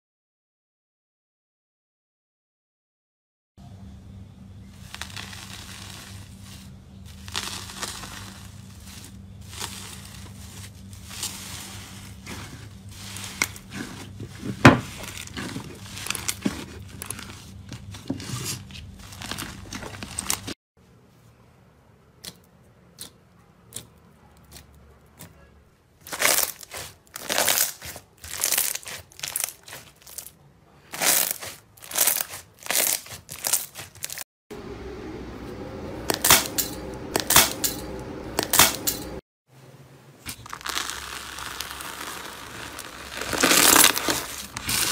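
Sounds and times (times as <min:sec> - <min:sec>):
low hum: 0:03.6 - 0:20.6, 0:34.5 - 0:39.2
crackly bursts of slime: 0:04.7 - 0:18.0, 0:26.0 - 0:34.2, 0:40.3 - 0:44.9
foil crinkling: 0:04.8 - 0:20.6, 0:26.0 - 0:34.2, 0:40.3 - 0:44.9
slime squishing: 0:04.8 - 0:20.6, 0:22.2 - 0:30.3, 0:30.9 - 0:34.2, 0:40.3 - 0:44.9.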